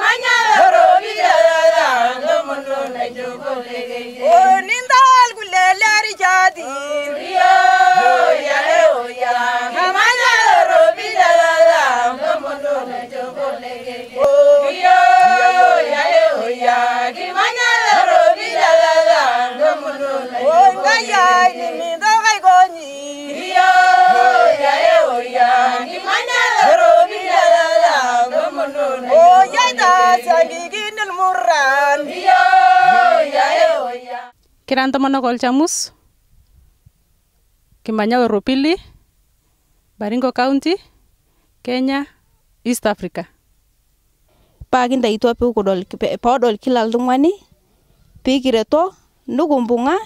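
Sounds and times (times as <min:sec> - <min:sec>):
women singing unaccompanied: 0:00.0 - 0:34.4.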